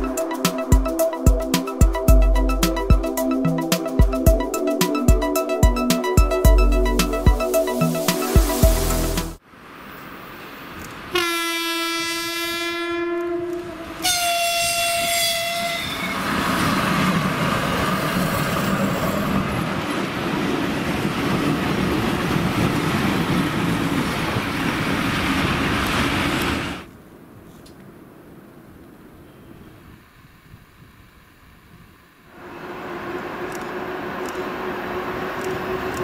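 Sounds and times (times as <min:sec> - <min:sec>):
locomotive horn blasts: 0:11.1 - 0:16.2.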